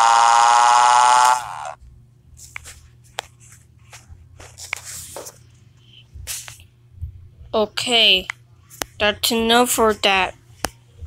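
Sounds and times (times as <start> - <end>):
synthetic voice screaming: 0.0 - 1.8.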